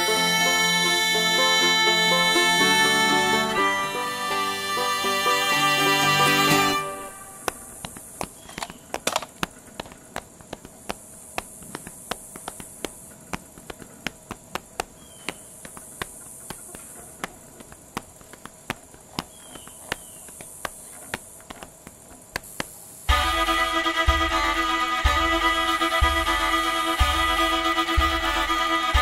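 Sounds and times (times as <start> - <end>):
insects droning: 0.0 - 29.0
sharp clicks: 7.4 - 23.0.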